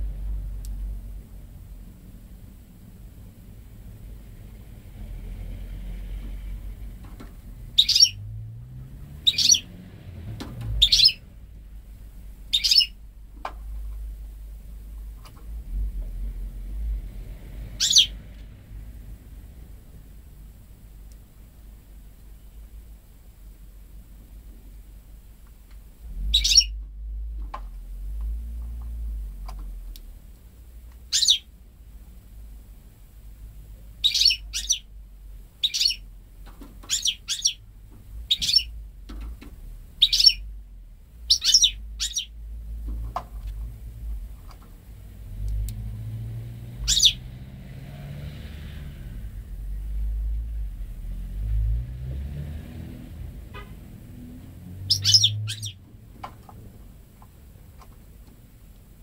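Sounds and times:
low rumble: 0.0 - 23.0
bird chirping: 7.7 - 8.3, 9.2 - 9.8, 10.8 - 11.2, 12.5 - 13.0, 17.8 - 18.2, 26.2 - 26.8, 31.1 - 31.5, 34.0 - 34.9, 35.6 - 36.1, 36.8 - 38.8, 40.0 - 40.5, 41.2 - 42.4, 46.8 - 47.3, 54.8 - 55.8
light clicks in cage: 45.4 - 45.9.

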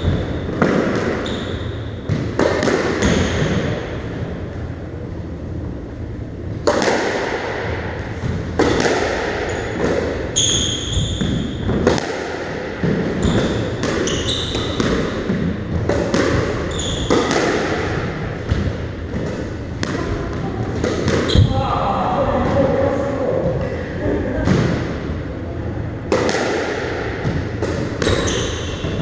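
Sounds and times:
squash ball hitting rackets and walls: 0.0 - 4.6, 6.5 - 21.6, 23.4 - 25.2, 26.0 - 29.0
shoes squeaking on wooden floor: 16.7 - 17.1.

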